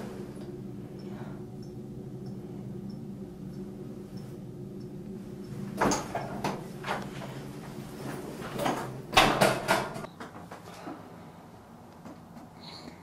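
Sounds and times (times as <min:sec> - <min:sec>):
low room hum: 0:00.0 - 0:13.0
door knocks and clicks: 0:09.1 - 0:10.1.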